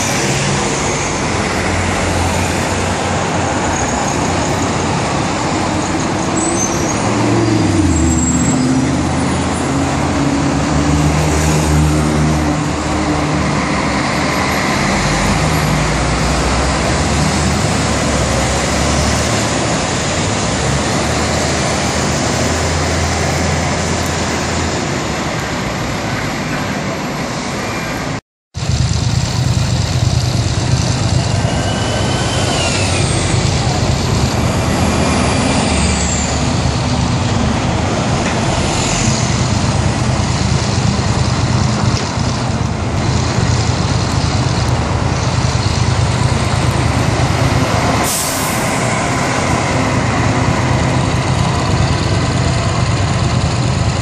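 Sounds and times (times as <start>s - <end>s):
bus engines passing: 0.0s - 54.0s
city street traffic: 0.0s - 54.0s
idling bus engine drone: 28.6s - 54.0s.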